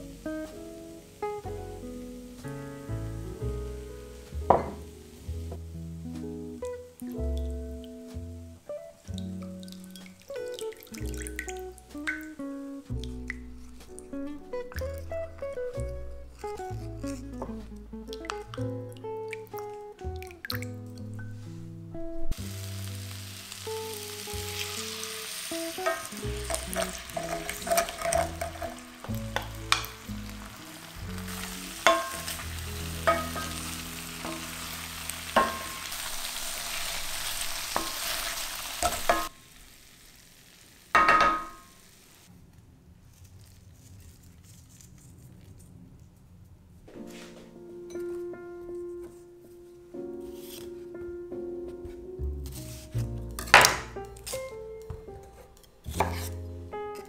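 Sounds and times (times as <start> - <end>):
food sizzling in a pan: 3.8 - 6.2, 22.3 - 42.3.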